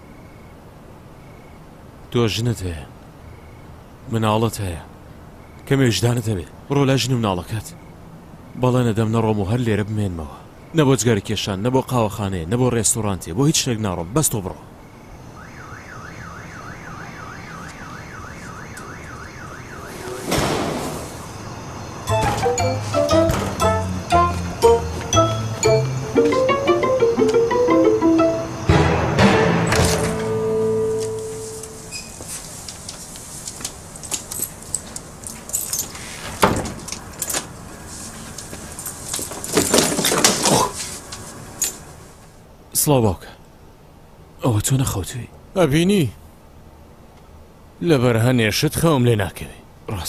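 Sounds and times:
electronic alarm warbling: 15.6 - 20.2
heavy thud: 20.0 - 21.3
keys jangling: 34.0 - 37.5, 41.6 - 41.8.

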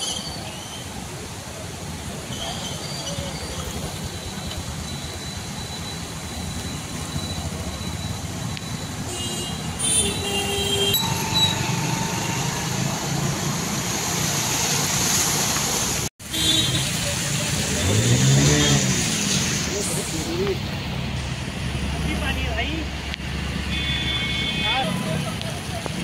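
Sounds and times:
car and motorcycle engines: 1.0 - 26.0
water wash noise: 10.8 - 26.0.

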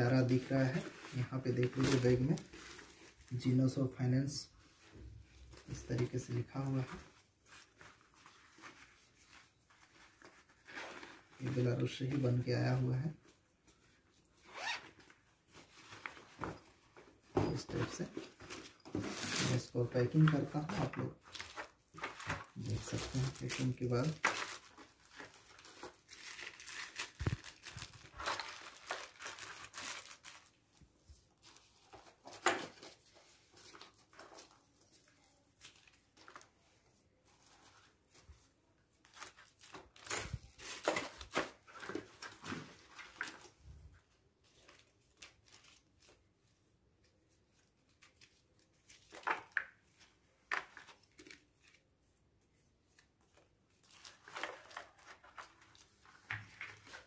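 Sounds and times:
paper and plastic rustling: 0.0 - 52.0, 52.6 - 57.0.

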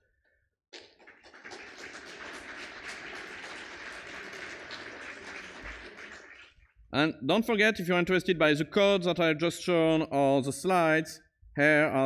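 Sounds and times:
audience applauding: 0.8 - 6.7.

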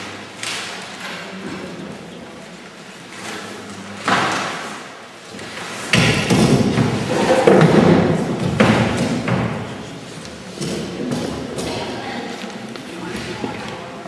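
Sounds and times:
cardboard scraping and knocking: 6.3 - 9.7.

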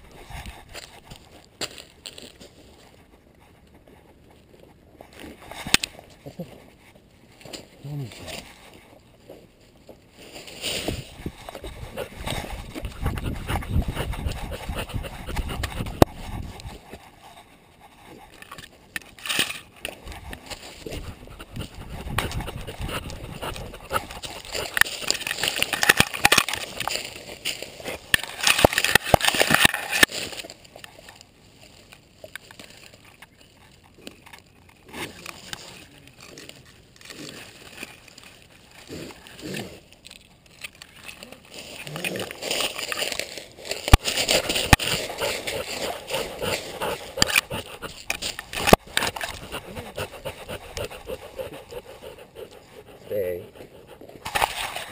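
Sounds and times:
camera mount rubbing and knocking: 11.4 - 17.0, 18.2 - 26.9, 43.9 - 52.0
dog rustling through dry leaves: 41.5 - 47.2.

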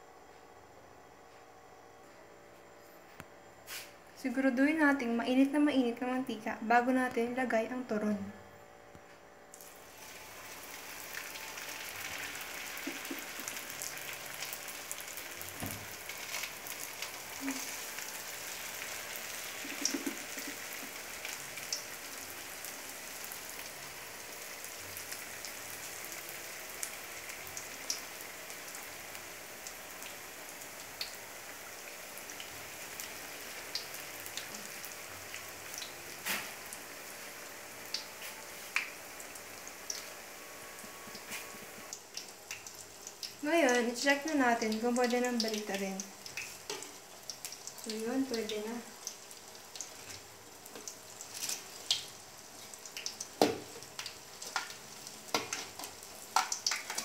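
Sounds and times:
oil crackles and pops: 9.5 - 23.8, 37.8 - 40.2, 41.1 - 57.0
deep-frying sizzle: 9.5 - 57.0.

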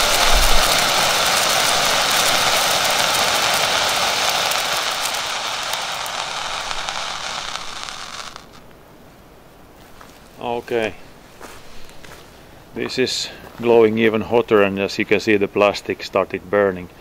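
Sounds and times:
hand flare burning with hiss: 0.0 - 8.8.

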